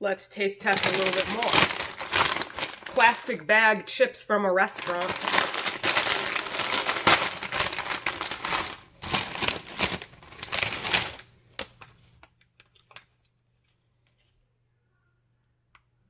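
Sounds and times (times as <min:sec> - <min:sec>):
plastic chip bag crinkling: 0:00.6 - 0:03.4, 0:04.6 - 0:13.2
sharp crackles: 0:00.7 - 0:03.3, 0:04.8 - 0:11.2
faint low hum: 0:04.8 - 0:16.0.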